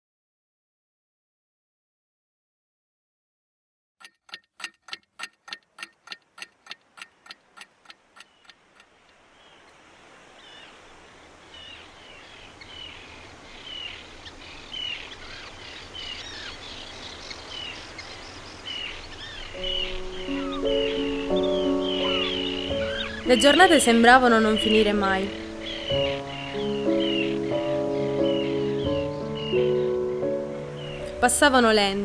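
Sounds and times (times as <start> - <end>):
clock ticking: 4.0 - 8.9
birds chirping: 5.8 - 32.0.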